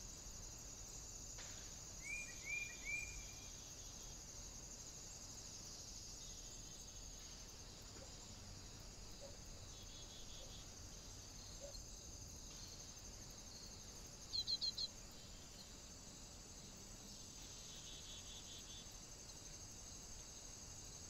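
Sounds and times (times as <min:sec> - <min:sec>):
crickets chirping: 0:00.0 - 0:21.0
small bird chirping: 0:14.2 - 0:14.9.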